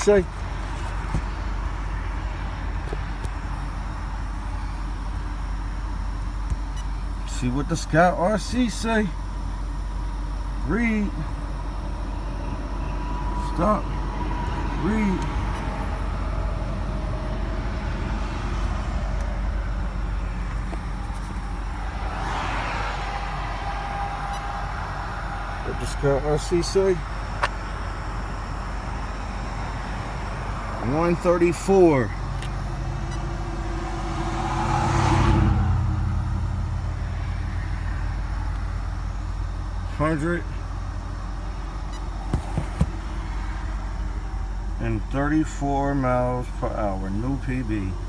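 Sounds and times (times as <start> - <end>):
low background rumble: 0.0 - 34.6
faint steady hum: 0.0 - 48.0
rushing swell: 21.2 - 26.1.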